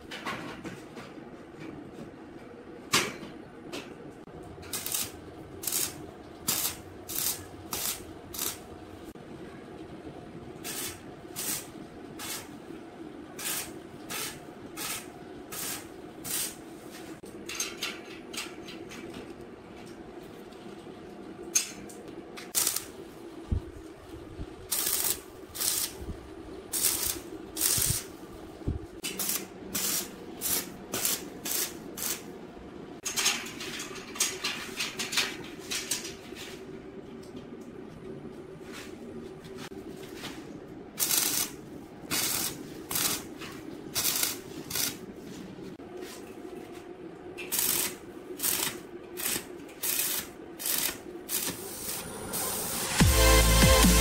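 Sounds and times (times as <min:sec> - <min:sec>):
steady low hum: 0:00.0 - 0:54.0
arc welder bursts: 0:04.7 - 0:08.7, 0:10.6 - 0:12.5, 0:13.4 - 0:16.6, 0:22.5 - 0:23.0, 0:24.7 - 0:26.0, 0:26.7 - 0:28.2, 0:29.0 - 0:32.3, 0:41.0 - 0:43.3, 0:43.9 - 0:45.0, 0:47.5 - 0:54.0.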